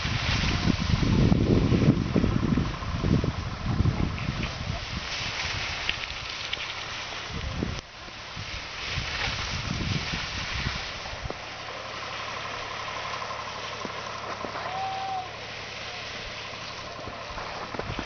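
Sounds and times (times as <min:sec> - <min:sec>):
wind buffeting microphone: 0:00.0 - 0:06.6, 0:07.2 - 0:11.5
outdoor hiss: 0:00.0 - 0:18.0
distant machine hum: 0:08.0 - 0:18.0.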